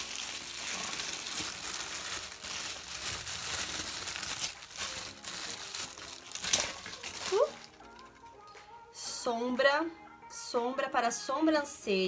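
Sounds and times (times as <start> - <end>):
wrapping paper crumpling: 0.0 - 8.2.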